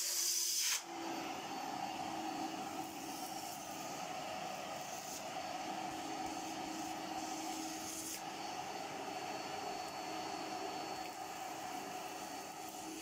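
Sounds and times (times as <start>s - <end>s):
air rushing in hose: 0.0s - 0.9s
vacuum cleaner motor whining: 0.0s - 13.0s.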